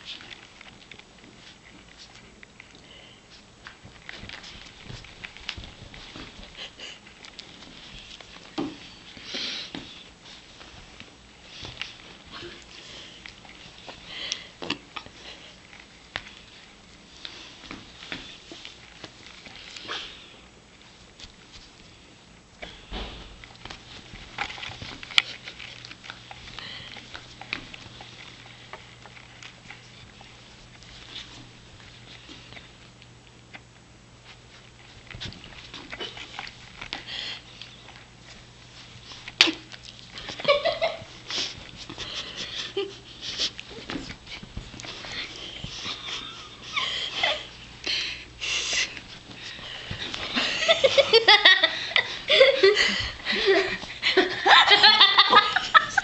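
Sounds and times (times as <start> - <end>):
paws scratching on cloth: 0.0 - 2.7, 3.3 - 14.1, 23.4 - 46.6.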